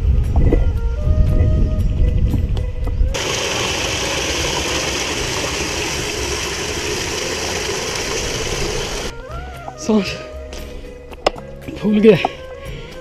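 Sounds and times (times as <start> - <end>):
stream water rushing and splashing: 3.2 - 9.1.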